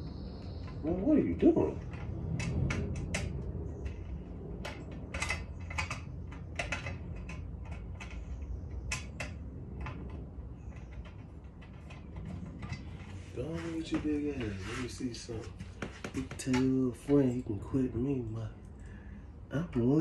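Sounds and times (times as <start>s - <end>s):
steady low hum: 0.0s - 20.0s
metal brackets clicking and clinking: 1.8s - 13.2s.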